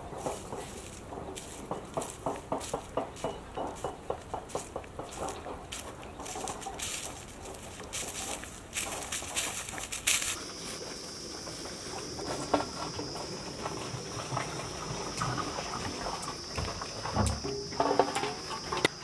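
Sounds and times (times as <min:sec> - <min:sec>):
footsteps crunching through stubble: 0:00.0 - 0:15.1.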